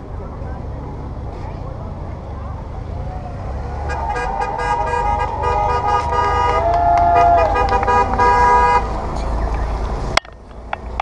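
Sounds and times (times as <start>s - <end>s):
horn-like tooting: 3.9s - 9.0s.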